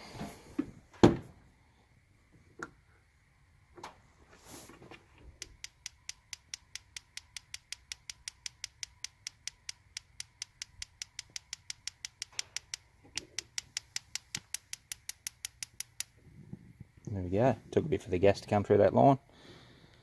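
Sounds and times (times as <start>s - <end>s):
gas barbecue igniter clicking: 5.4s - 16.1s.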